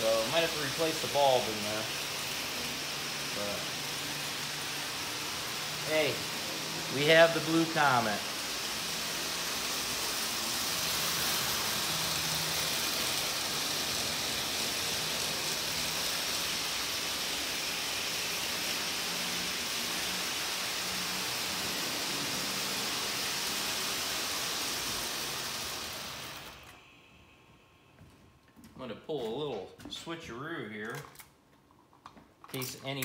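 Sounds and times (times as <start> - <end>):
model train rolling hiss: 0.0 - 27.4
faint hum: 26.6 - 29.8.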